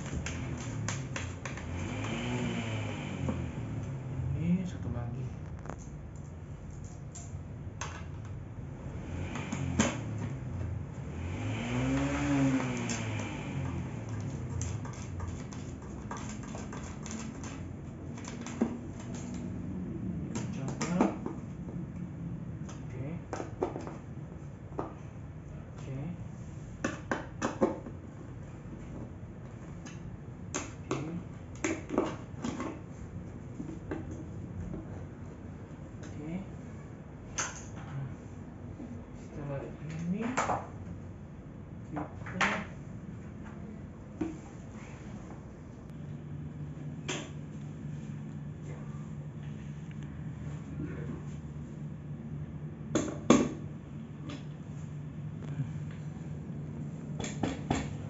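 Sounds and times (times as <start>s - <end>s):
passing vehicle engine: 0.0s - 4.8s, 8.6s - 15.5s.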